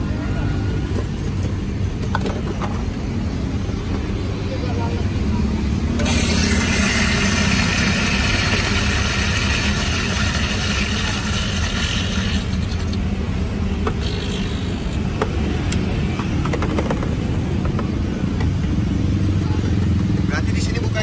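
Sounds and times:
coffee grinder grinding beans: 0:06.0 - 0:13.0, 0:13.9 - 0:15.0.

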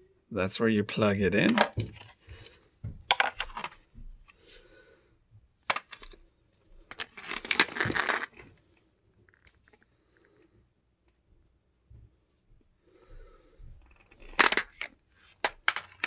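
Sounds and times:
plastic cases scraping and clattering: 0:01.4 - 0:03.9, 0:06.9 - 0:08.6, 0:14.0 - 0:16.0.

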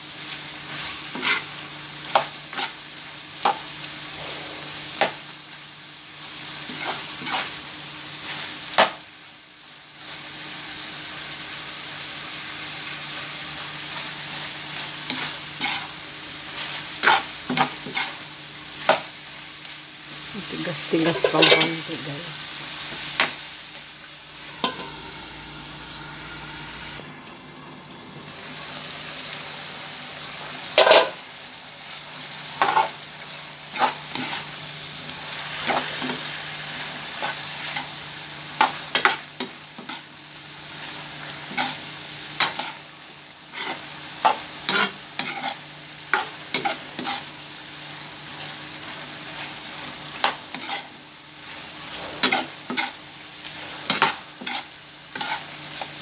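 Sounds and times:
meat sizzling in frying pan: 0:00.0 - 0:56.0
metal spoon scraping pan: 0:21.0 - 0:21.9, 0:24.5 - 0:25.4, 0:43.5 - 0:47.2, 0:50.2 - 0:50.9, 0:51.8 - 0:55.9.

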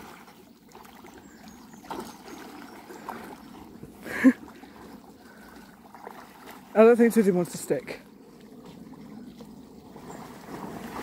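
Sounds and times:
water splashing and lapping: 0:00.0 - 0:11.0.

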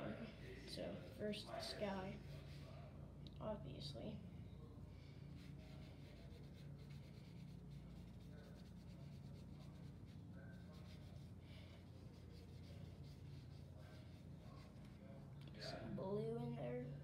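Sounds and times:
low steady hum: 0:00.0 - 0:17.0
paintbrush strokes on paper: 0:01.6 - 0:02.9, 0:05.2 - 0:15.3.

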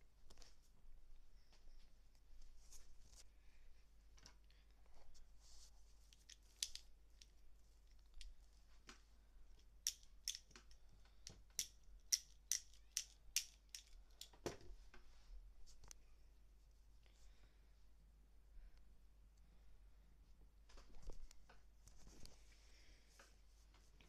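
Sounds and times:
toy pen clicking: 0:06.2 - 0:07.3, 0:09.8 - 0:10.8, 0:11.5 - 0:14.3.

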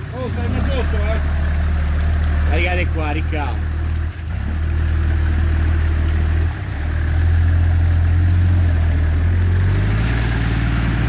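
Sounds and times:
truck engine droning: 0:00.0 - 0:11.0.

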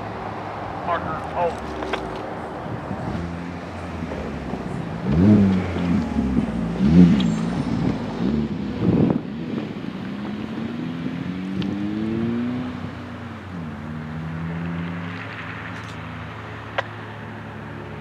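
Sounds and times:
engine accelerating: 0:03.0 - 0:12.9.

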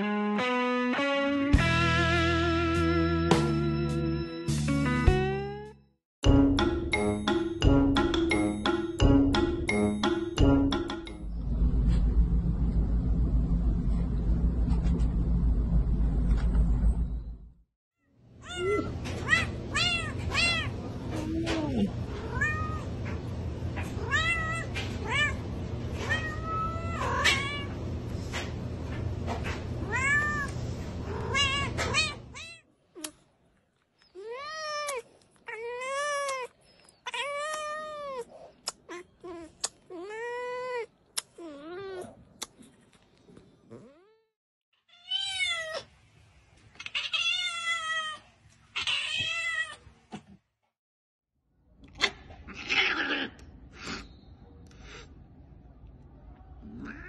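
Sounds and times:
cat meowing: 0:56.7 - 0:57.0.

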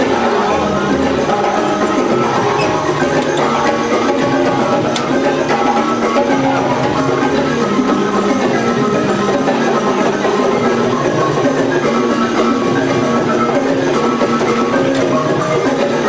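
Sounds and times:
hand drums: 0:00.0 - 0:16.0
wooden xylophone notes: 0:00.0 - 0:16.0.

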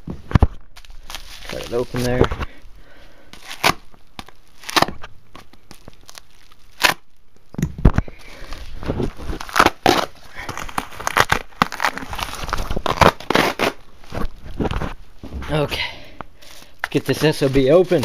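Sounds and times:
cardboard ripping: 0:00.8 - 0:02.3, 0:03.4 - 0:05.1, 0:05.7 - 0:07.0, 0:08.3 - 0:15.0, 0:16.5 - 0:18.0
tearing and rustling: 0:00.8 - 0:02.4, 0:03.3 - 0:07.1, 0:08.2 - 0:15.0, 0:16.4 - 0:18.0.

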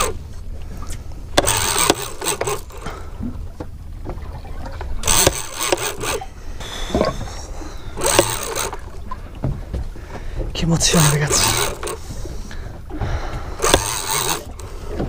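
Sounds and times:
fishing reel cranking: 0:01.4 - 0:02.9, 0:05.0 - 0:09.0, 0:10.8 - 0:12.2, 0:13.6 - 0:15.0
steady low rumble: 0:06.2 - 0:10.9.

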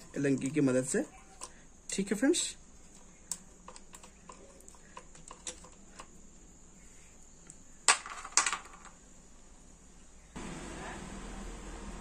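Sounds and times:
metal parts clattering: 0:03.6 - 0:06.1.

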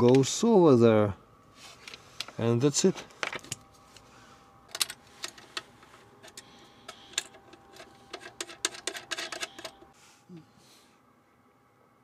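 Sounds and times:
small clicks of terminals handled: 0:04.7 - 0:09.9.

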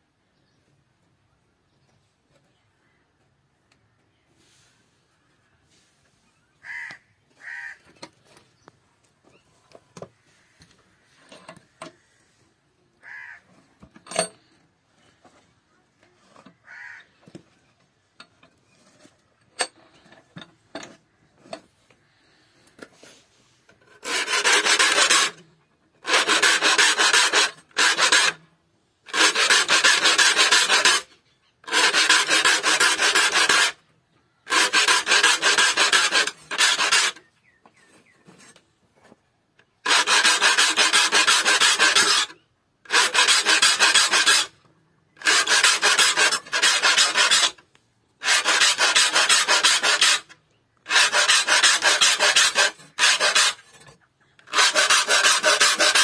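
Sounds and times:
file rasping on saw teeth: 0:23.9 - 0:28.4, 0:29.1 - 0:33.8, 0:34.5 - 0:37.3, 0:39.8 - 0:44.6, 0:45.2 - 0:47.6, 0:48.2 - 0:56.0.

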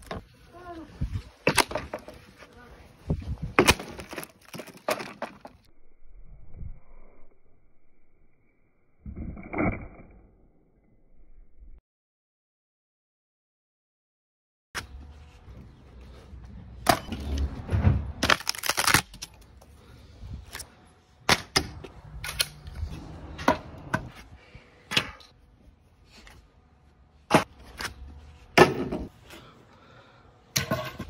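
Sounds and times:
crashing wooden clatter: 0:03.6 - 0:05.6.

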